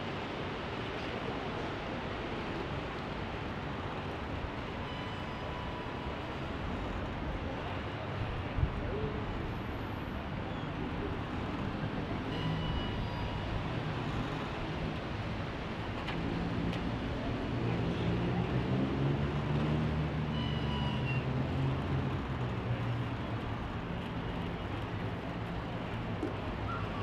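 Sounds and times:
city traffic noise: 0.0 - 27.0
vehicle engine drone: 10.9 - 27.0
short high squeals: 20.2 - 21.2.

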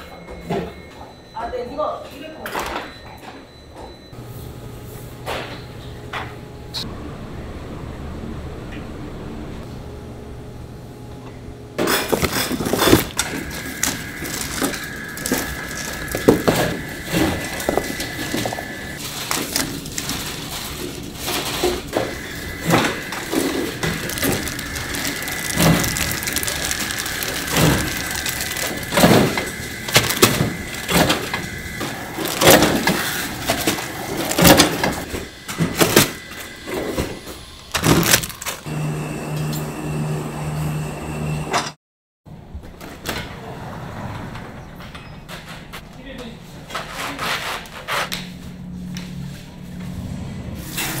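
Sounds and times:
high machine whine: 3.5 - 41.8
low hum: 6.4 - 19.2
utensils clattering: 11.8 - 36.2.

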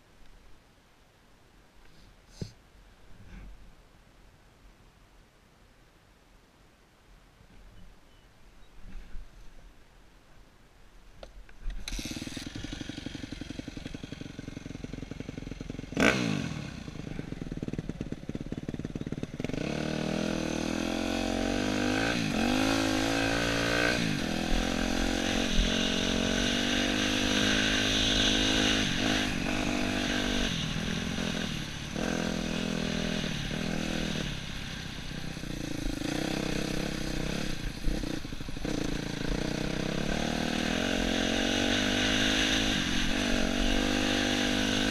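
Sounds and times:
motorcycle engine revving: 11.7 - 44.9.

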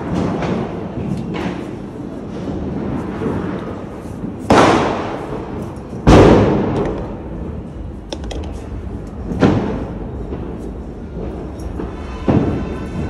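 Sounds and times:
firecracker bangs echoing: 4.5 - 6.8, 9.3 - 13.0.

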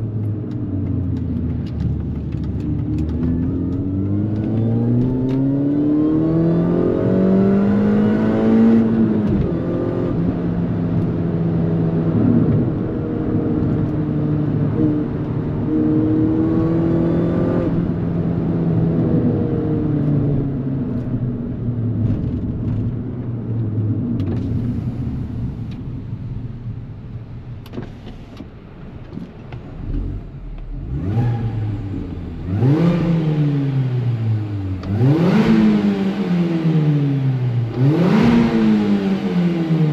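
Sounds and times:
car engine revving: 1.2 - 21.2, 29.6 - 39.9.

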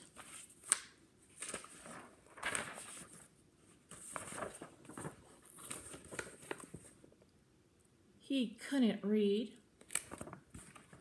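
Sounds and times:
book pages rustling: 0.0 - 7.2, 9.9 - 11.0.

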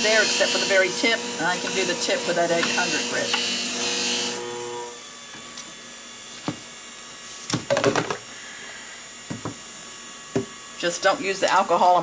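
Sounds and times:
sharpening machine hum: 0.0 - 7.6.

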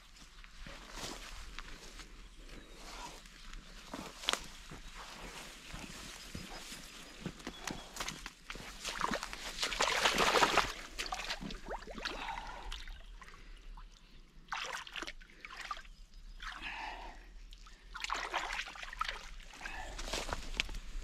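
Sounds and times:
water splashing around boots: 8.4 - 12.9, 17.9 - 19.4.

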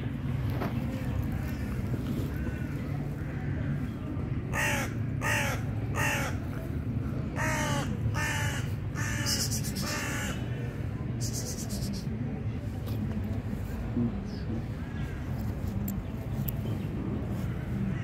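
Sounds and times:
crow cawing: 4.5 - 6.4, 7.4 - 10.4.

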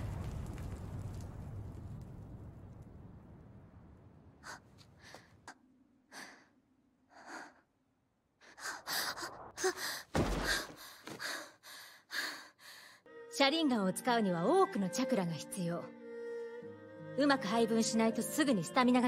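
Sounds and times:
low rumble: 0.0 - 6.1
girl gasping and breathing: 6.1 - 6.5, 7.1 - 7.7, 8.4 - 13.0.

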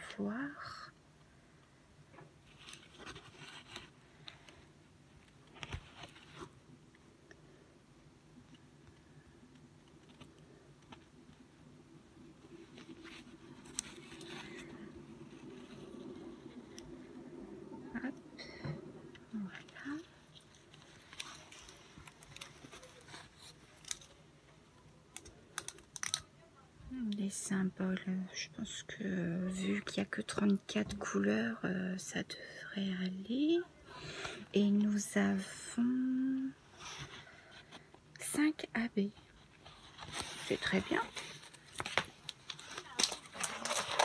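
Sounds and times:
plastic film crinkling: 12.2 - 17.0, 19.4 - 24.3, 25.1 - 26.3, 39.9 - 44.0.

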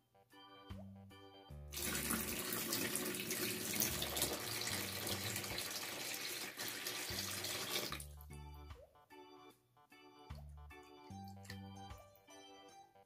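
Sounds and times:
water pouring into tub: 1.8 - 8.1.

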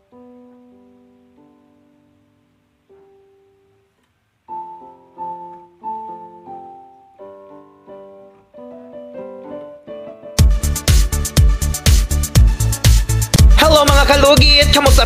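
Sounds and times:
soft piano music: 0.0 - 12.0
loud beat-driven music: 10.4 - 15.0.

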